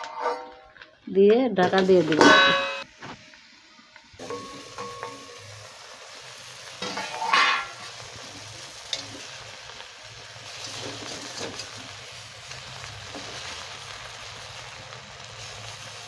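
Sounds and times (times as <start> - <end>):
fish sizzling in oil: 1.7 - 16.0
metal cover clink: 2.1 - 2.8, 4.2 - 5.4, 6.8 - 7.8.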